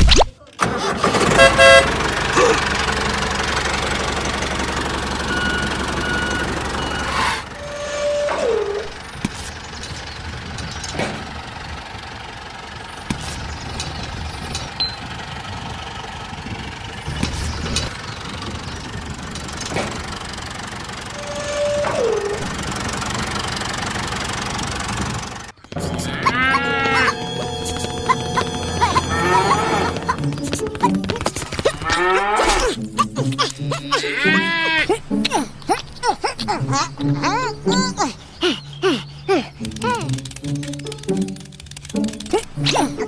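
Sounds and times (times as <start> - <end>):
short falling tone: 25.7 - 30.8.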